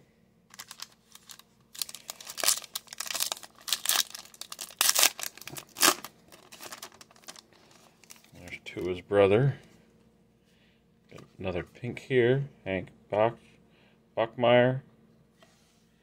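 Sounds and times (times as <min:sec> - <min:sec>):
foil card pack tearing and crinkling: 0:00.5 - 0:08.3.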